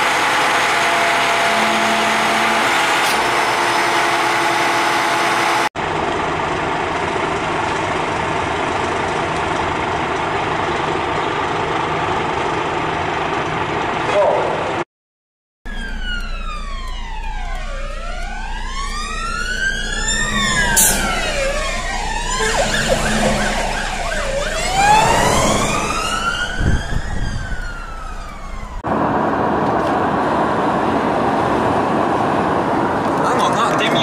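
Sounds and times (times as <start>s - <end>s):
fire engine wail sirens: 0.0s - 14.8s, 15.7s - 34.0s
road noise inside moving car: 28.8s - 34.0s.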